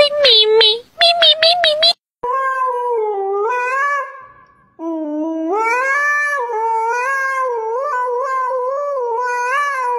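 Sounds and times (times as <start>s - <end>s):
husky howling into a microphone: 2.3s - 4.3s, 4.9s - 9.9s.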